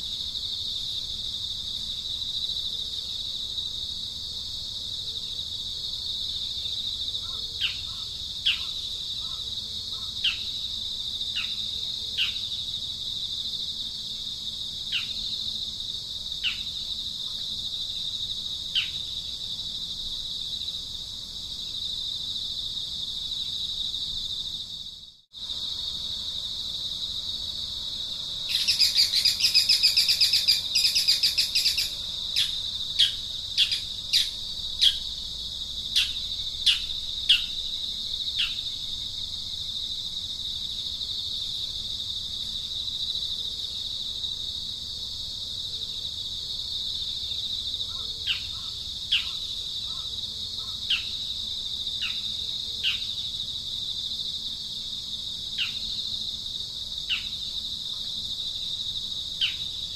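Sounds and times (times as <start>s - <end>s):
high-pitched insect chorus: 0.0s - 59.9s
bird trilling: 28.5s - 35.0s
bird chirping: 28.5s - 35.1s.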